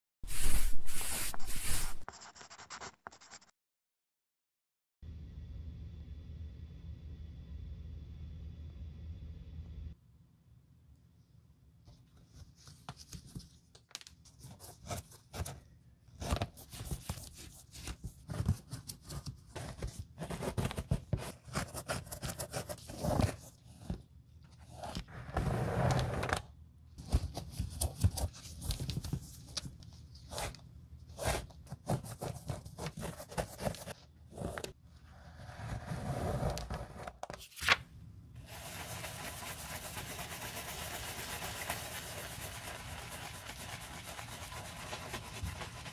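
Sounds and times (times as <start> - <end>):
brush scrubbing a shoe: 0.3 - 2.1, 38.4 - 45.9.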